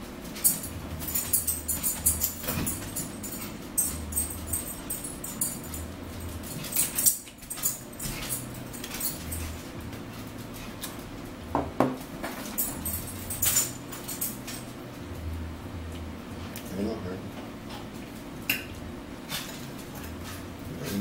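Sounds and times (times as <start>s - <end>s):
forks clicking on plates: 0.3s - 9.7s.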